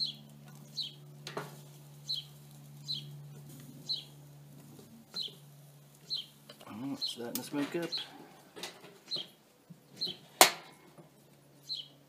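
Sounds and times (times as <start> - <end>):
bird chirping: 0.0 - 1.1, 2.0 - 4.2, 4.8 - 8.4, 9.0 - 10.4, 11.2 - 12.0
steady low hum: 0.0 - 12.0.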